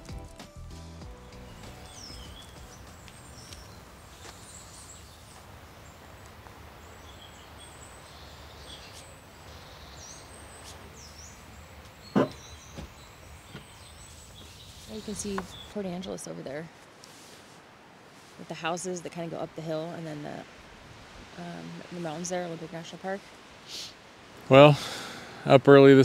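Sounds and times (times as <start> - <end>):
small birds chirping: 1.1 - 16.8
hatch shutting thump: 12.1 - 12.9.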